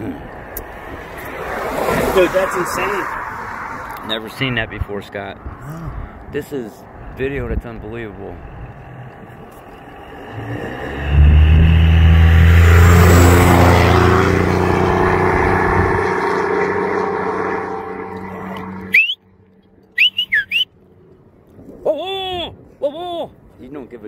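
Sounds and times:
high sweeping chirps: 14.8 - 20.7.

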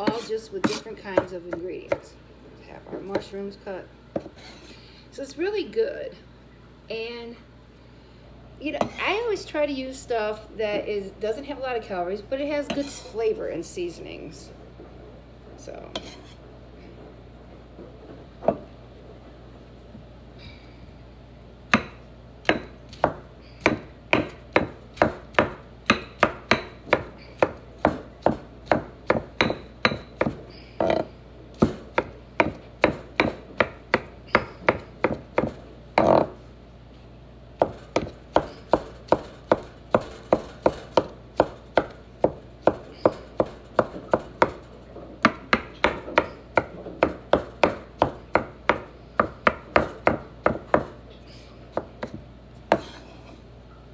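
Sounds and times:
knife chopping on wooden board: 21.7 - 31.0, 31.6 - 36.3, 51.7 - 53.0.

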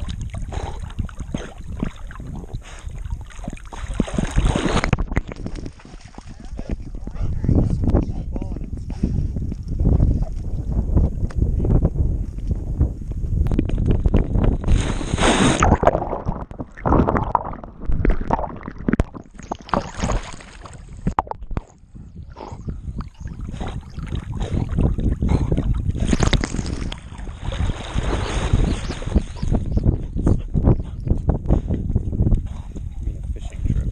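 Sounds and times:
water splashing and churning: 0.0 - 7.4, 13.6 - 30.0.

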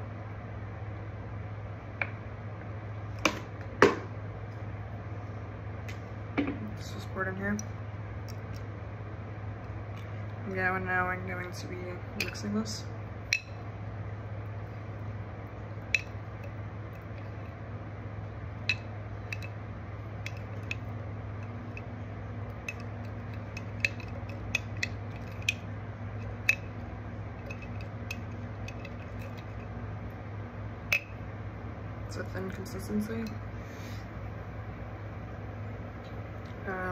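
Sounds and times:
steady low hum: 0.0 - 36.9
spoon clinking against glass jar: 27.4 - 29.6.

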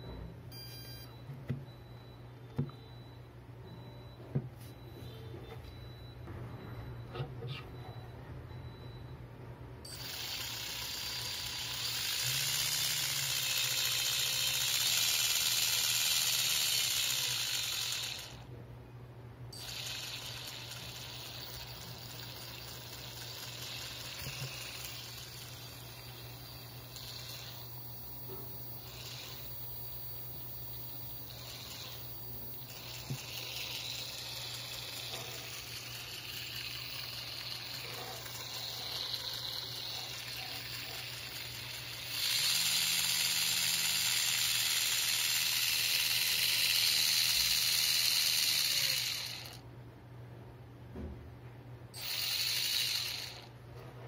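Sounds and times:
motor spinning gearbox whirring: 9.9 - 18.5, 19.6 - 49.6, 52.0 - 53.5
low motor hum: 9.9 - 18.7, 19.6 - 49.6.

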